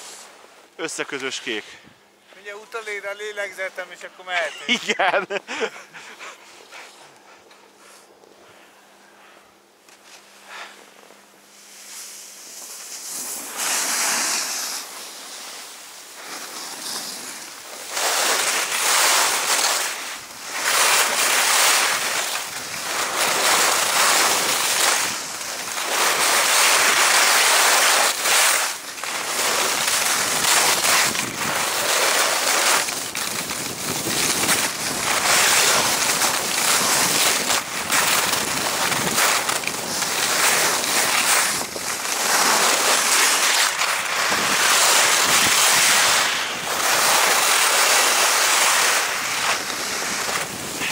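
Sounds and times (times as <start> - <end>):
skis scraping on snow: 0.0 - 0.4, 2.3 - 7.1, 9.9 - 50.9.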